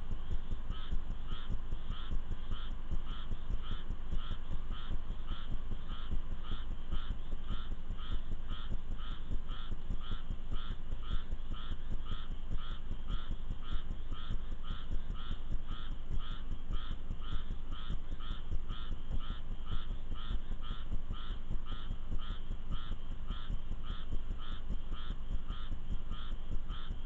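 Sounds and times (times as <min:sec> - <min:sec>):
animal calling rhythmically: 0:00.0 - 0:27.0.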